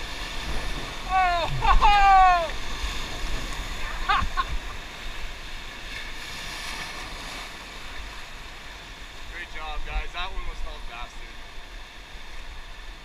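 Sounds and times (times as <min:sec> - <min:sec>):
wind on microphone: 0:00.0 - 0:07.4
river water rushing: 0:00.0 - 0:13.0.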